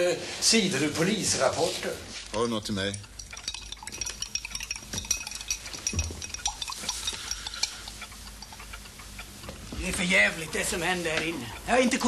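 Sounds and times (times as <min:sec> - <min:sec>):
light clicks and clinks: 0:02.3 - 0:09.0.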